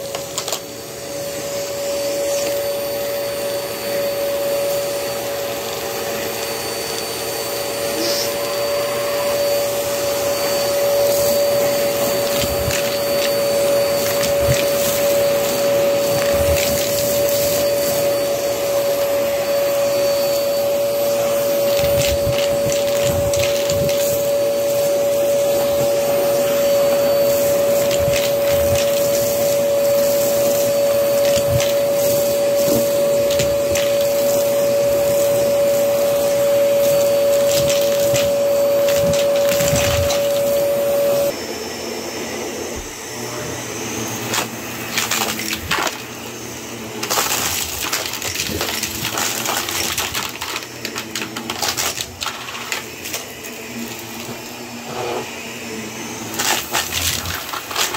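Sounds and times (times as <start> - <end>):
vacuum cleaner running on carpet: 0.0 - 57.9
dry debris crackling on carpet: 21.7 - 24.3, 27.3 - 35.4, 36.0 - 40.5, 47.0 - 53.2.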